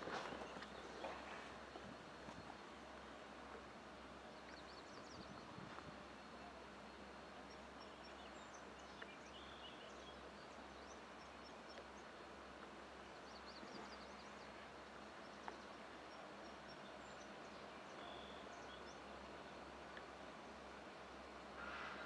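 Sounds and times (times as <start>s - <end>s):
faint background hiss: 0.0s - 22.0s
faint bird chirps: 15.2s - 19.6s.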